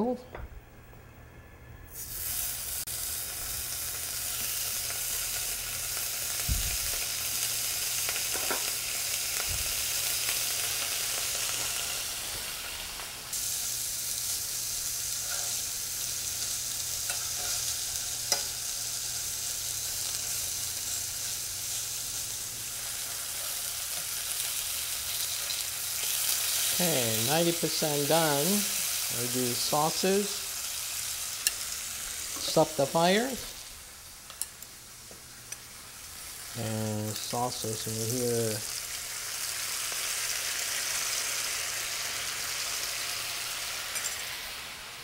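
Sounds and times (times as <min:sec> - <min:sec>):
meat sizzling in frying pan: 0:01.9 - 0:45.0
tongs clicking in pan: 0:17.0 - 0:17.6, 0:18.2 - 0:18.6, 0:31.4 - 0:31.7, 0:34.2 - 0:34.7, 0:43.9 - 0:44.2.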